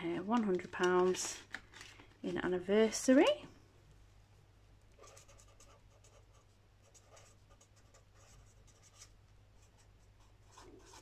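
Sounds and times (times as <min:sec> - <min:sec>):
pen scratching on paper: 0:05.0 - 0:09.1, 0:10.4 - 0:11.0.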